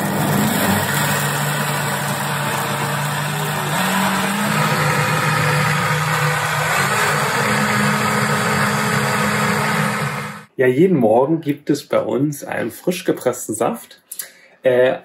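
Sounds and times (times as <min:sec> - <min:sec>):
blender motor whirring: 0:00.0 - 0:10.5.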